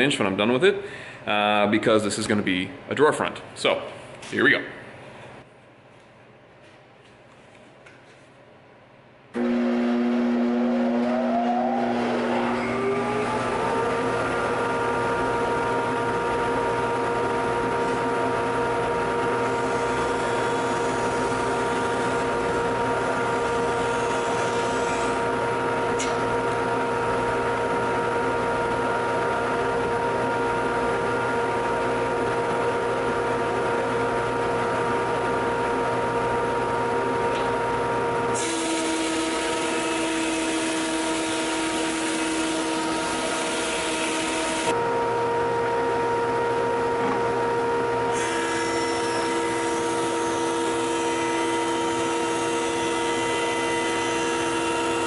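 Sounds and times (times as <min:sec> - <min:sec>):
planer machine whine: 0:09.4 - 0:55.0.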